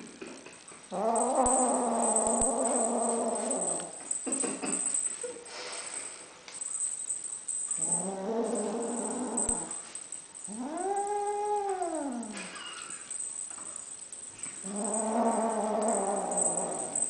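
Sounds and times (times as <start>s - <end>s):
kitten growling: 0.9s - 4.2s, 7.8s - 9.8s, 10.5s - 12.9s, 14.6s - 17.0s.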